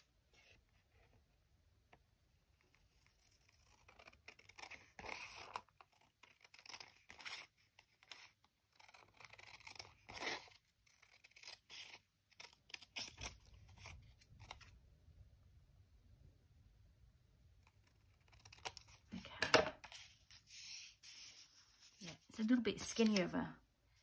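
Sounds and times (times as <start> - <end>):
scissors cutting paper: 2.7 - 14.7, 17.6 - 21.4, 22.1 - 23.4
paper being handled: 19.8 - 23.4.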